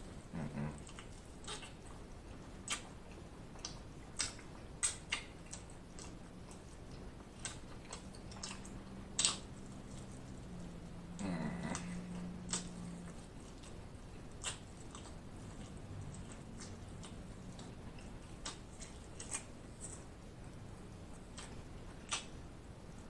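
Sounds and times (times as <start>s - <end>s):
wet chewing and biting: 0.0s - 22.6s
person humming low: 0.3s - 0.9s, 11.0s - 13.0s.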